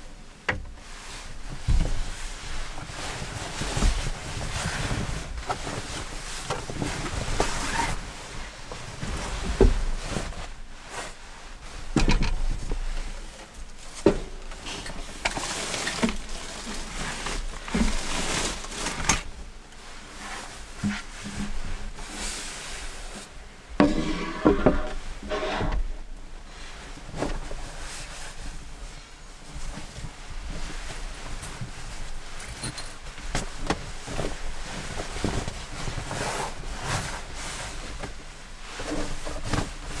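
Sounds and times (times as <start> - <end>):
fabric rustling: 0.8 - 40.0
wooden board knocks and thumps: 23.8 - 25.8.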